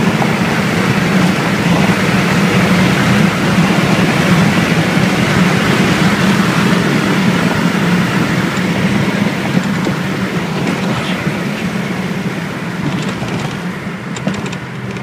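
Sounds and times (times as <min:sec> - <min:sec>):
car engine drone: 0:00.0 - 0:15.0
road and wind noise: 0:00.0 - 0:15.0.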